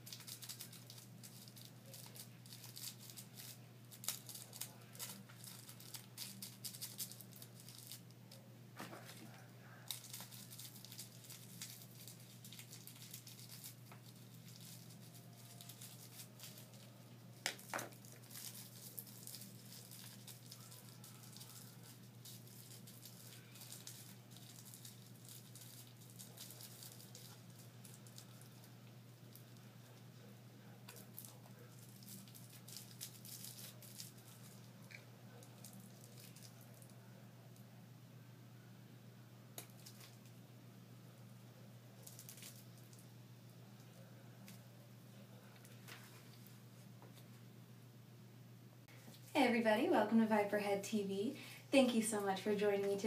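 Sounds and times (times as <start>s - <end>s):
fingers crumbling material: 0.0s - 30.0s.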